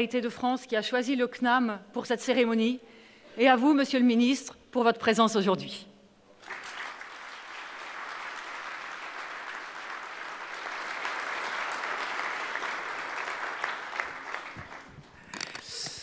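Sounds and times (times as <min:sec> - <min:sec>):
audience applauding: 0:06.4 - 0:15.1.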